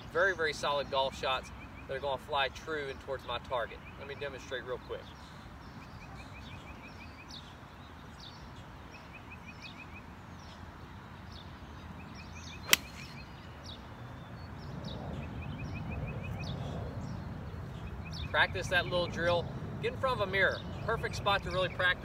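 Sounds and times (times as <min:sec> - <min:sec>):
birds chirping trills: 0:00.0 - 0:22.0
outdoor background noise: 0:00.0 - 0:22.0
golf club striking ball: 0:12.7 - 0:13.3.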